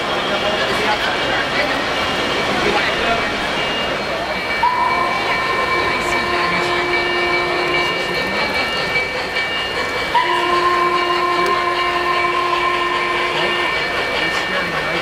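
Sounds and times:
model train rolling on track: 0.0s - 15.0s
model train steam whistle: 4.6s - 8.2s, 10.1s - 14.0s.

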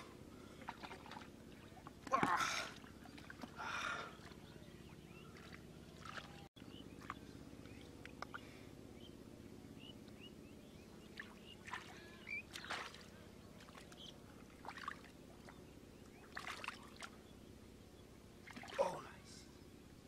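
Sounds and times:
low steady hum: 0.0s - 20.0s
bird chirps: 4.2s - 14.2s
hands splashing muddy water: 5.3s - 6.4s, 11.2s - 14.0s.

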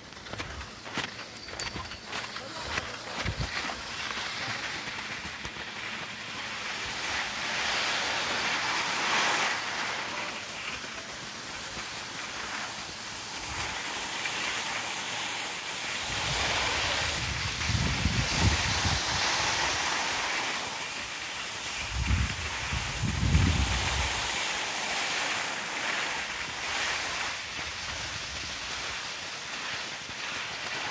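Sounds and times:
skis sliding over snow: 0.0s - 30.9s
wind buffeting microphone: 16.0s - 19.8s, 21.8s - 24.4s.

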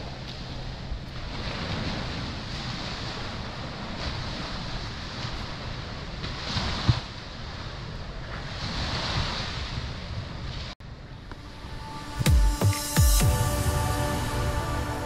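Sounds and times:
small waves washing onto sand: 0.0s - 10.8s.

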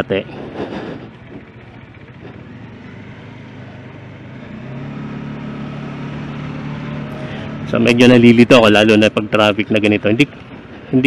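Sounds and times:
motorcycle engine drone: 0.0s - 11.0s
wind and road noise: 0.0s - 11.0s.

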